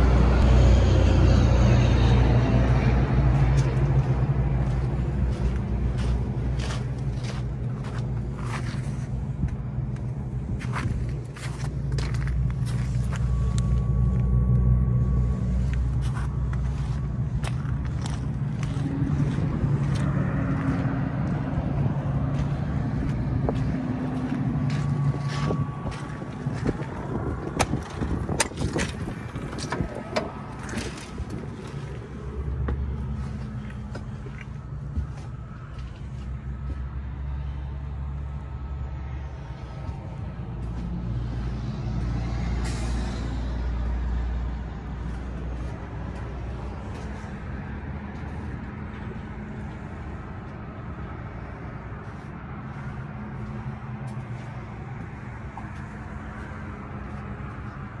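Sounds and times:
engine idling: 2.8s - 41.6s
footsteps on gravel: 3.4s - 13.9s, 15.4s - 36.8s, 52.0s - 57.8s.

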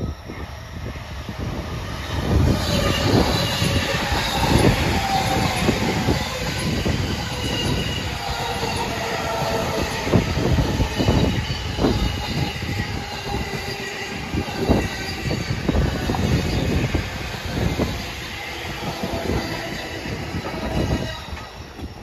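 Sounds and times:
electric train running past: 0.0s - 22.0s.

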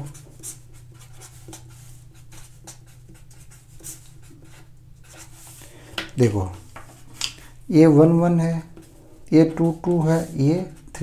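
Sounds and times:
marker pen scratching on paper: 0.0s - 5.6s
low steady hum: 0.0s - 11.0s.

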